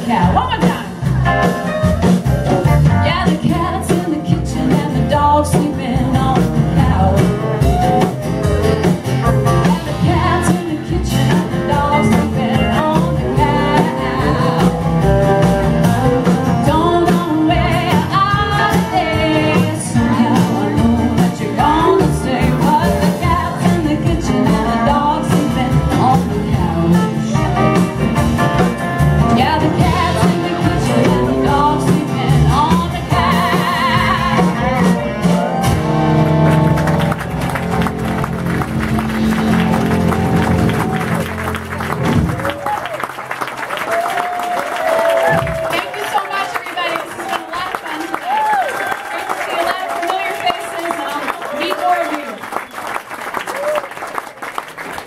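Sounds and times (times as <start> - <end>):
woman singing: 0.0 - 1.1, 3.0 - 8.0, 9.6 - 15.0, 16.4 - 28.0, 29.2 - 35.0
drums: 0.0 - 51.4.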